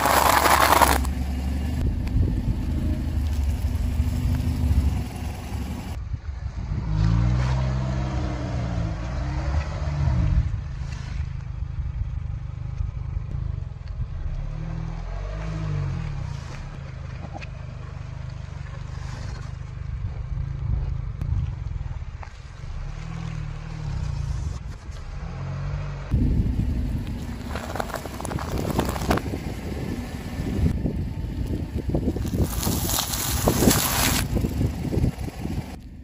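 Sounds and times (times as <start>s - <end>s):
car engine at low revs: 0.2s - 6.7s, 9.0s - 36.0s.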